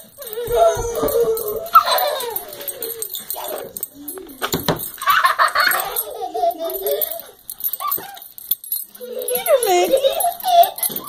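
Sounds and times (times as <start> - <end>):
woman and toddler laughing: 5.0 - 7.3, 9.0 - 11.0.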